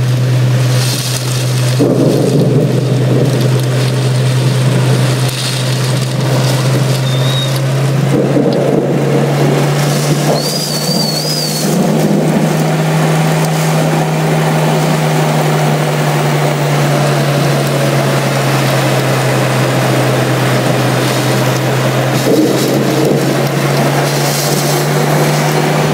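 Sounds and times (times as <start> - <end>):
heavy rain in strong wind: 0.0 - 25.9
steady low hum: 0.0 - 25.9
high warbling whistle: 6.8 - 7.7, 9.2 - 25.9.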